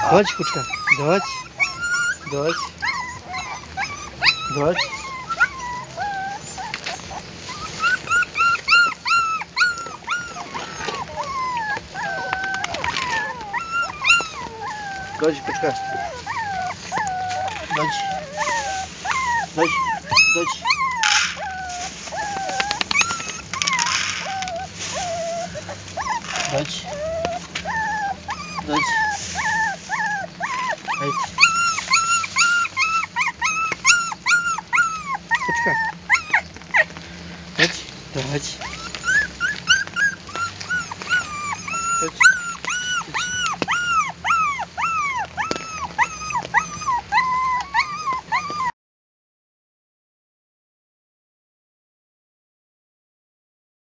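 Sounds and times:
dogs whining: 0.0 - 48.7
plastic bag rustling: 0.0 - 48.7
kibble rattling into plastic dish: 22.4 - 24.6.

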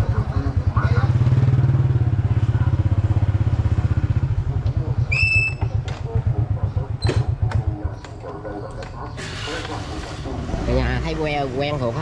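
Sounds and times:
motorbike engine running: 0.0 - 8.1
high whistle-like chirp: 5.1 - 5.6.

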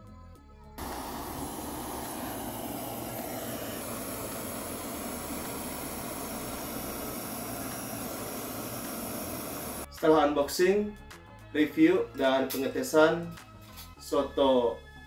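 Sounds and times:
gas torch hissing: 0.8 - 9.9.

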